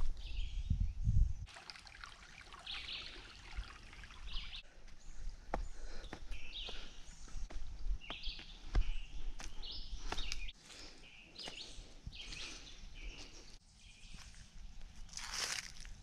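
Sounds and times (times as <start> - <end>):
birds chirping: 2.3 - 15.1
footsteps on leaf litter: 14.2 - 16.0.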